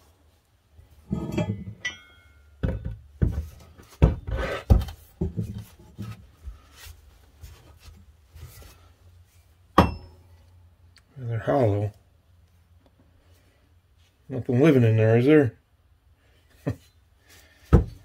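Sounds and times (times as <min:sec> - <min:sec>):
metallic clink: 0:01.2 - 0:02.6
metal knocking on wooden workbench: 0:02.6 - 0:04.3.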